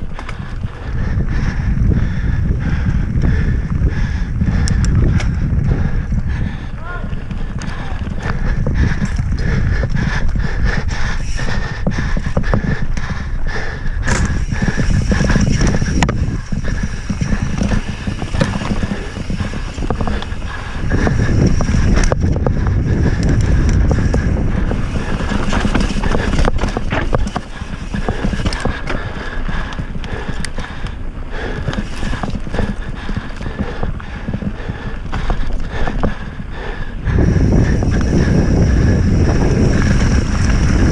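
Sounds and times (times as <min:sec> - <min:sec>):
wind and ground rumble: 0:00.0 - 0:40.9
bike clattering over rocks: 0:14.0 - 0:22.6, 0:23.2 - 0:30.7.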